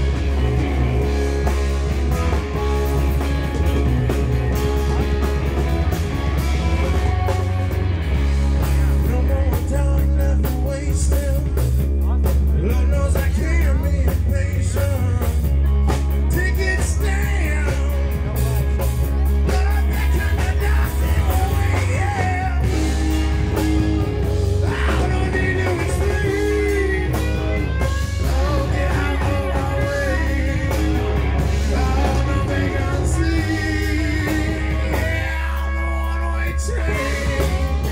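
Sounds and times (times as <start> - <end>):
drums: 0.0 - 37.9
electric bass line: 0.0 - 37.9
electric guitar: 0.0 - 37.9.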